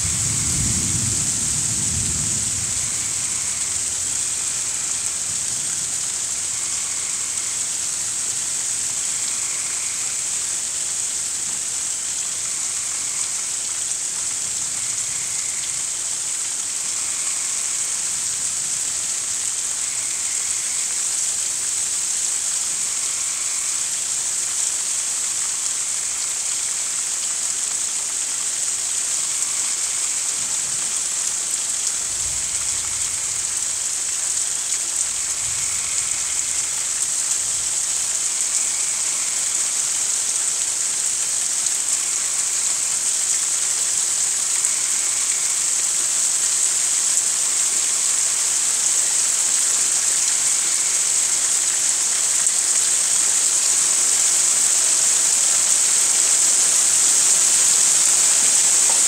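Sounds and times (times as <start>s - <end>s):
distant thunder rumble: 0.0s - 4.1s
steady rain hiss: 0.0s - 59.0s
faint frog calls: 2.8s - 11.1s, 12.1s - 18.6s, 19.2s - 21.4s, 22.2s - 27.0s, 29.2s - 40.4s, 44.5s - 45.8s.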